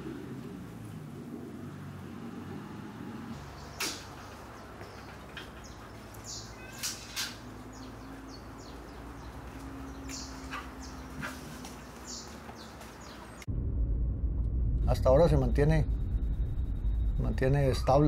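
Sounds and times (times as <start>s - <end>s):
low steady hum: 13.4s - 18.0s.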